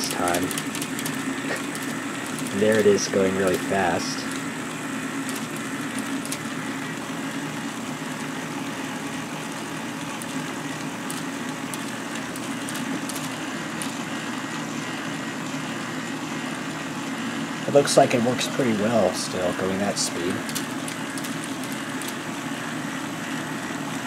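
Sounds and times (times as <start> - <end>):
toy motor and gears whirring: 0.0 - 4.5, 5.2 - 6.6, 10.1 - 14.1, 18.5 - 22.3.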